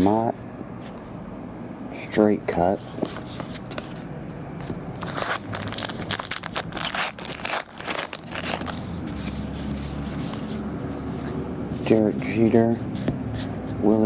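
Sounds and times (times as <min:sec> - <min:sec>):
paper wrapper tearing and crinkling: 0:05.0 - 0:10.4.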